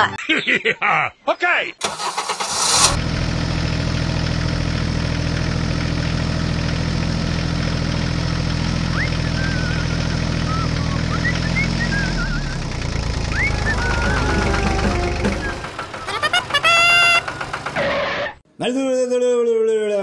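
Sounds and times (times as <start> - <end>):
tractor engine idling: 1.8 - 18.0
short whistled chirps: 8.9 - 12.6.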